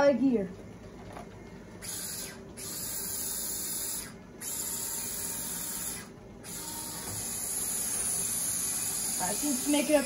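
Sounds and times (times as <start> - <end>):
small electric motor whirring hiss: 1.8 - 10.0.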